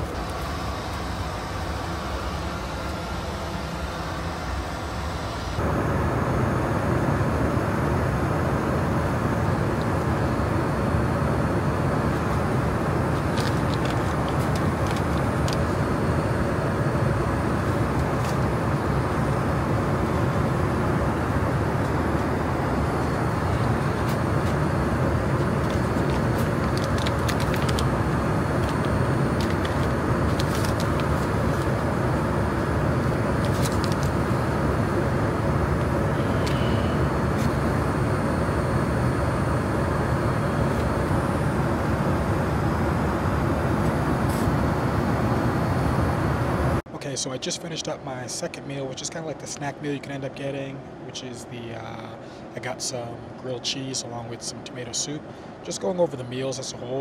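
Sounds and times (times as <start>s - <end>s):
airplane cabin noise: 0.0s - 57.0s
packets crinkling: 13.2s - 15.7s, 25.5s - 31.8s, 33.4s - 34.1s.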